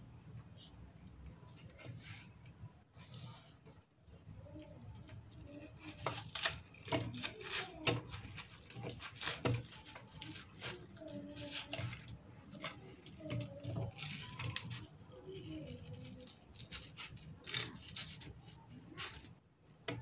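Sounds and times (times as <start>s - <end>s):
knife slicing watermelon: 5.4s - 15.0s, 15.6s - 20.0s.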